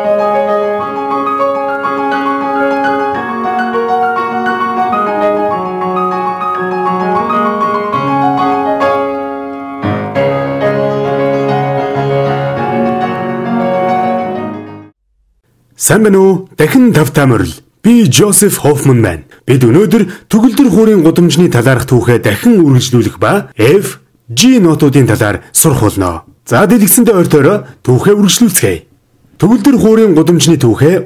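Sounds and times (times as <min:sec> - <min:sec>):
solo piano music: 0:00.0 - 0:15.0.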